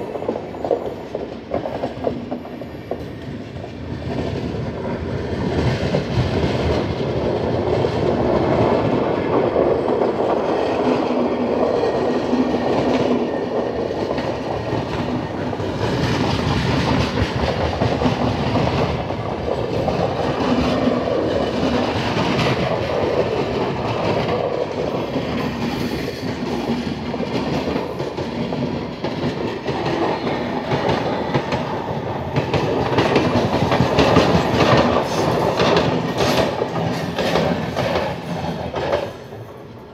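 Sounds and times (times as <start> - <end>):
train wheels rumbling on rail: 0.0 - 39.9.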